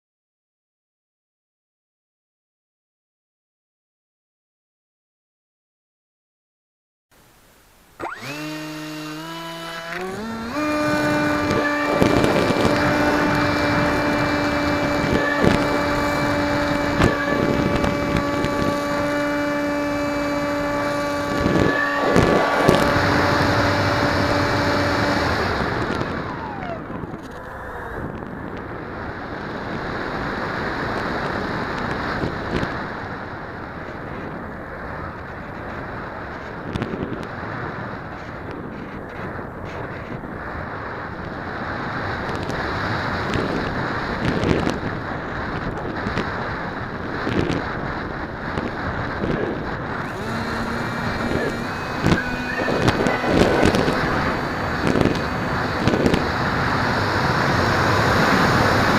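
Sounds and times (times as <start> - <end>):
model plane motor whining: 8.0 - 32.9, 48.8 - 58.9
wind rushing over microphone: 8.0 - 58.9.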